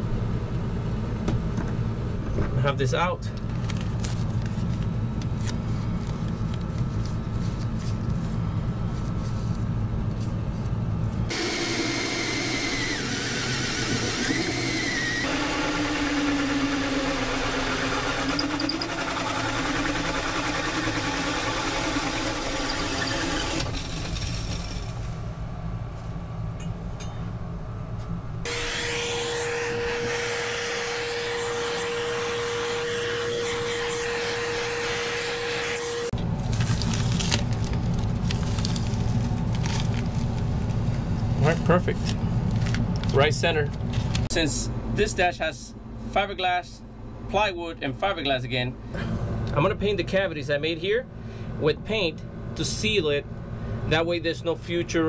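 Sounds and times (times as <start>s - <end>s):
power tool cutting: 11.3s - 24.3s, 28.5s - 36.1s
shop vacuum humming: 11.3s - 25.2s, 28.4s - 36.4s.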